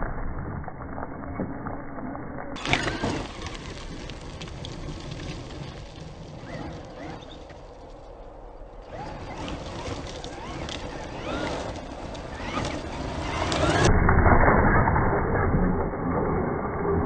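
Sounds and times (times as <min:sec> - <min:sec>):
tyres churning gravel: 0:02.6 - 0:13.9
electric motor whining: 0:08.8 - 0:13.9.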